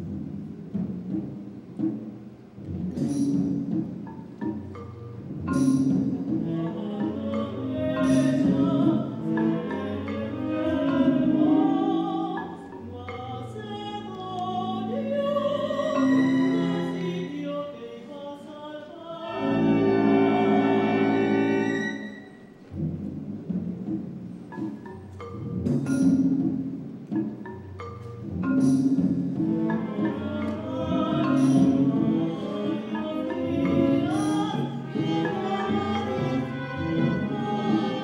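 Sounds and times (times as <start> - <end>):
orchestra playing: 0.0 - 17.5, 19.2 - 38.0
opera singing: 6.4 - 22.3, 29.6 - 38.0.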